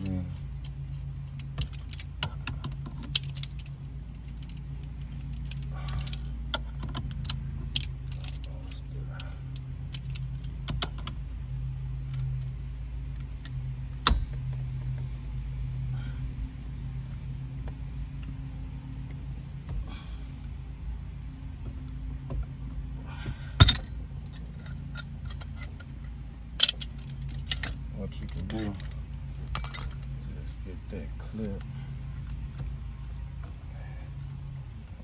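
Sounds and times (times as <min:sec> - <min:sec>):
steady low hum: 0:00.0 - 0:35.0
metal tools clinking on metal: 0:23.6 - 0:30.3.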